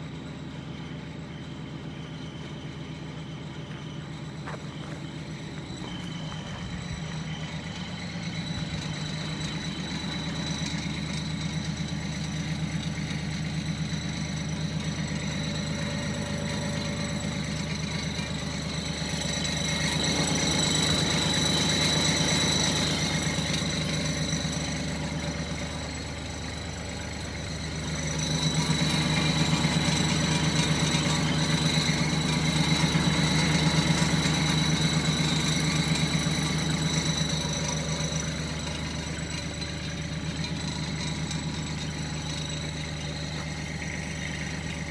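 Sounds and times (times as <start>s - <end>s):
tractor diesel engine idling: 0.0s - 44.9s.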